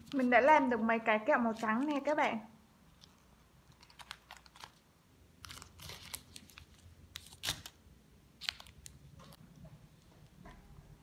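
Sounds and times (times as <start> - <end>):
plastic wrappers crinkling: 0.0 - 0.5, 2.9 - 7.8, 8.4 - 9.5.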